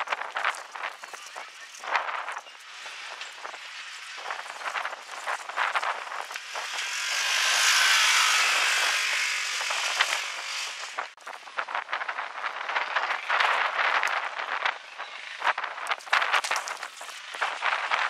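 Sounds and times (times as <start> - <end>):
off-road vehicle driving past: 6.2 - 11.1.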